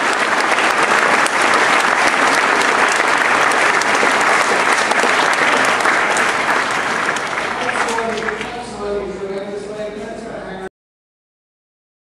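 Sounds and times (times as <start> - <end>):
large crowd applauding: 0.0 - 9.5.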